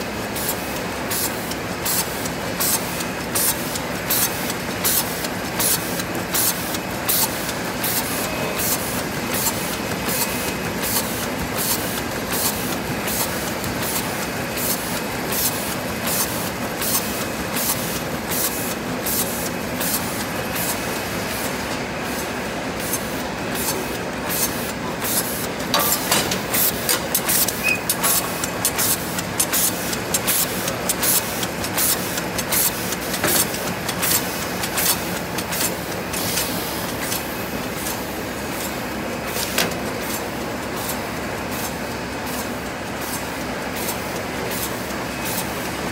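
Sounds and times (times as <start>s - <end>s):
bag making machine running: 0.0s - 45.9s.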